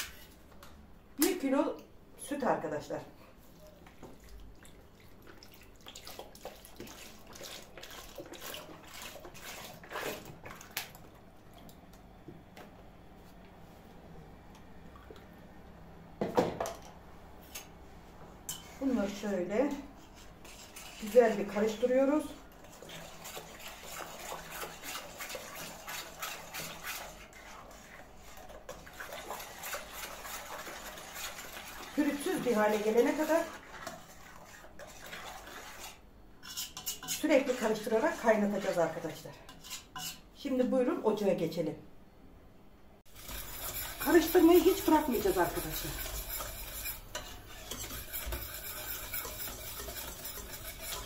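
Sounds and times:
utensil stirring liquid in pot: 3.4s - 11.8s, 19.8s - 40.3s, 43.0s - 51.0s
milk pouring and splashing: 3.5s - 11.9s, 22.7s - 36.0s.

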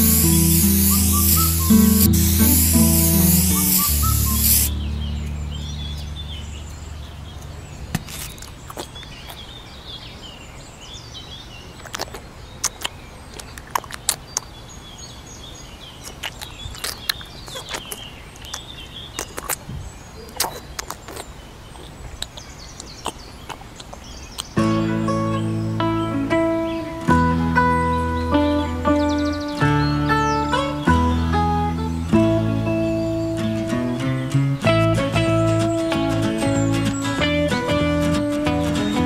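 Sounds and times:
music: 0.0s - 6.2s, 24.6s - 39.0s
birds chirping: 0.0s - 39.0s
low steady rumble: 4.7s - 7.9s.

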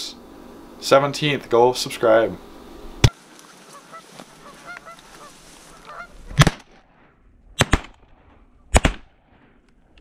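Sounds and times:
geese honking: 3.1s - 6.4s
shotgun blasts: 6.3s - 9.6s.

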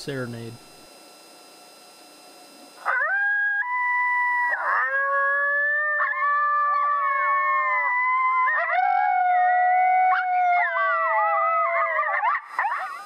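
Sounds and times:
recorded coyote howls: 2.8s - 13.0s.

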